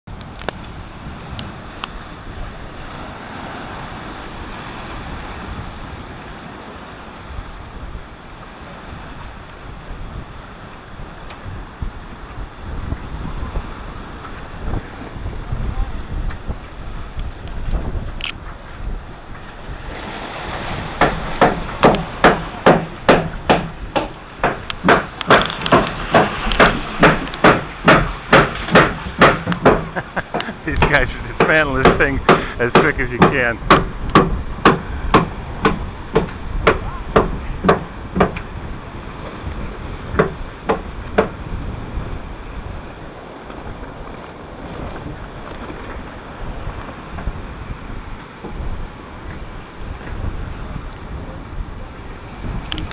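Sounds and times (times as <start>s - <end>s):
surf breaking: 0.0s - 52.9s
wind on the microphone: 0.0s - 52.9s
hand tool striking wood: 21.0s - 38.4s, 40.2s - 41.4s
sharp knocks: 21.0s - 38.5s, 40.1s - 41.4s.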